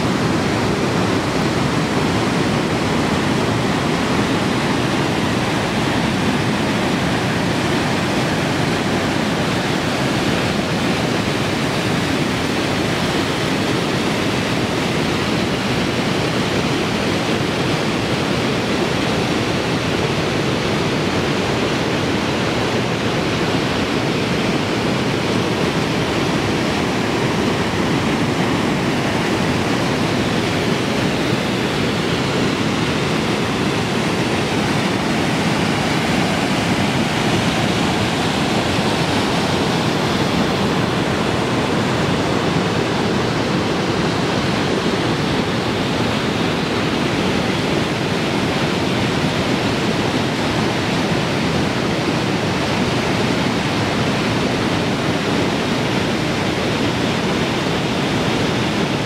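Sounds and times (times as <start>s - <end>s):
waterfall rushing: 0.0s - 59.0s.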